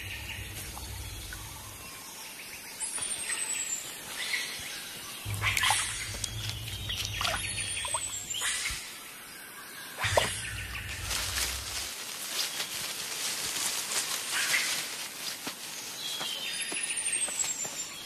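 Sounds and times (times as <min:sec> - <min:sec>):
low rumble: 0:00.0 - 0:01.9, 0:05.3 - 0:08.8, 0:10.0 - 0:11.9
birds chirping: 0:00.0 - 0:12.8.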